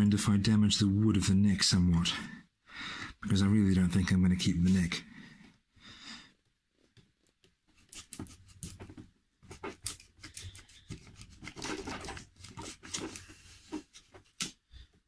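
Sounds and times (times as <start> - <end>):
knife prying wood scraping: 7.8 - 8.8.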